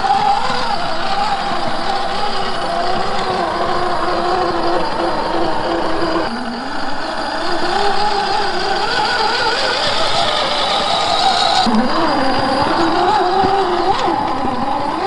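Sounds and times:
toy car electric motor whining: 0.0 - 15.0.

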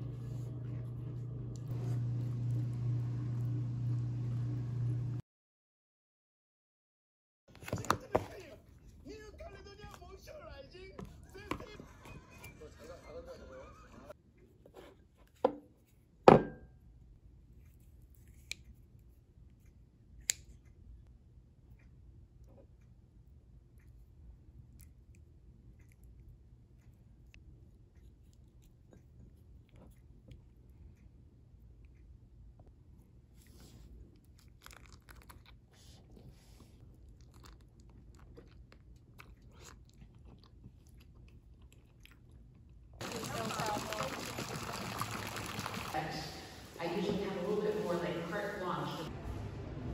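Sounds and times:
knife knocking glass bowl: 16.3 - 16.7
soft chewing: 17.0 - 45.9.

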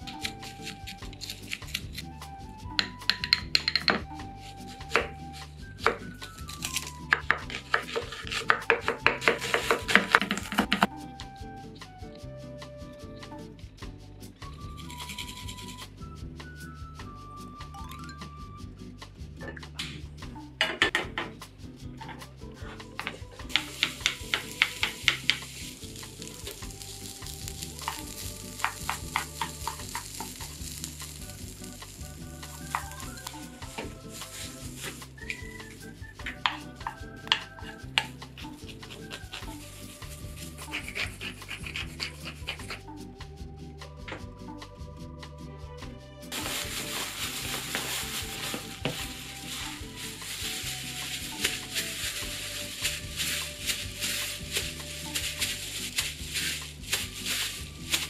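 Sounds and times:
soft background music: 0.0 - 58.0
onion sizzling in frying pan: 5.8 - 10.8, 23.5 - 35.8, 37.3 - 42.8, 46.3 - 58.0
knife chopping onion on wooden board: 5.8 - 10.9, 23.5 - 25.5, 37.3 - 39.6.

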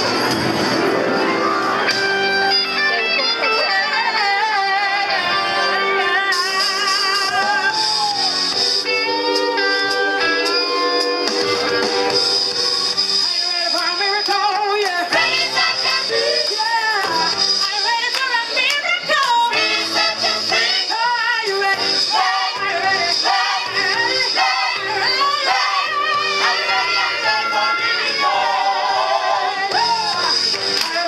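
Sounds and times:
woman singing through loudspeaker: 3.5 - 7.7, 13.4 - 31.0
choir singing harmonies: 8.5 - 13.2, 15.1 - 17.1, 19.4 - 30.5.

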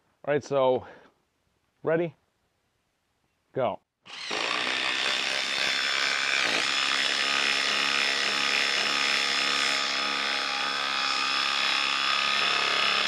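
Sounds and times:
impact driver hammering: 4.2 - 13.0.

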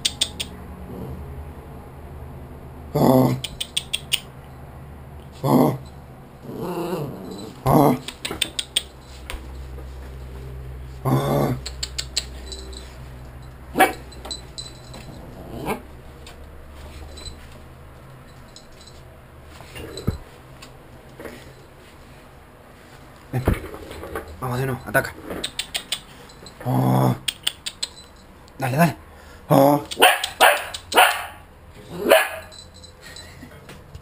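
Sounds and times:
sharp clicks: 0.0 - 0.6, 3.4 - 4.3, 8.0 - 9.0, 11.6 - 12.4, 25.4 - 26.1, 27.2 - 28.2
small dog growling: 0.9 - 1.3, 5.3 - 8.4, 11.0 - 11.8, 15.1 - 15.9
small dog barking: 13.8 - 14.0, 30.0 - 32.5.

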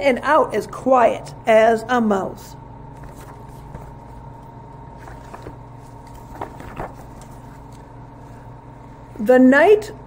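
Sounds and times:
steady hum: 0.0 - 10.0
book page rustling: 2.9 - 8.5.

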